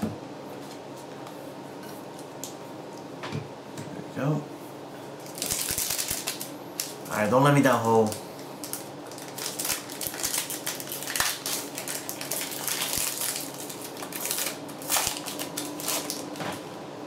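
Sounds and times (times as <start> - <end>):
foil wrapper crinkling and tearing: 5.2 - 16.4.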